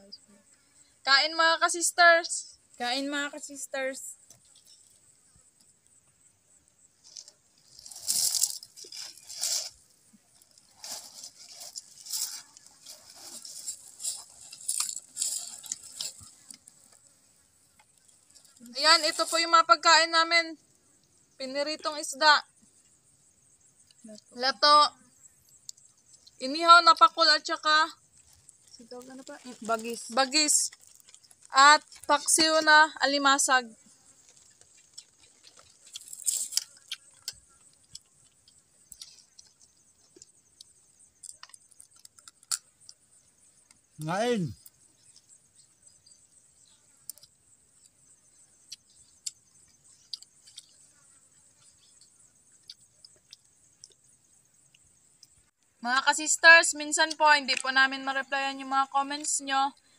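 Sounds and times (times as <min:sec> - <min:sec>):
faint high insect drone: 0:00.0 - 0:59.9
crunching and rustling while eating: 0:06.8 - 0:19.6, 0:28.0 - 0:32.6, 0:33.8 - 0:43.9, 0:44.5 - 0:55.4.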